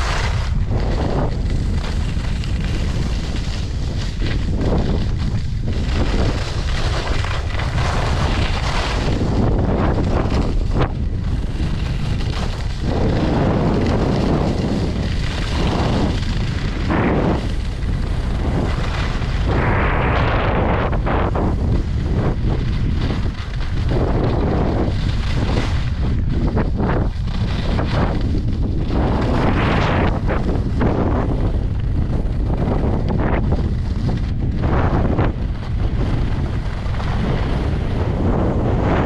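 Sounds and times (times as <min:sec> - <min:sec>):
skis scraping snow: 0:00.0 - 0:39.0
wind buffeting microphone: 0:00.0 - 0:39.0.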